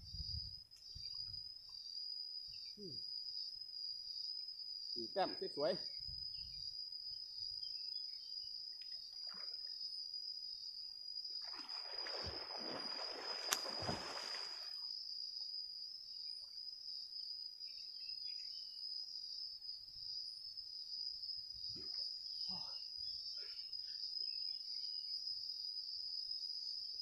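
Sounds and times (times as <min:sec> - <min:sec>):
crickets buzzing: 0:00.0 - 0:27.0
water splashing: 0:11.4 - 0:14.8.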